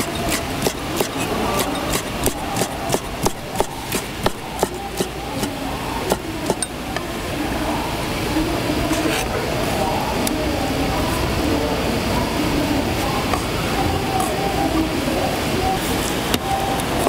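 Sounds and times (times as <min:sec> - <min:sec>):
knife chopping on wooden board: 0:00.0 - 0:05.5.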